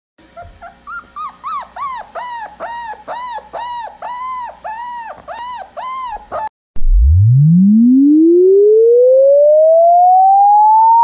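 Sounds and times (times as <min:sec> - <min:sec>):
dog whining: 0:00.2 - 0:06.5.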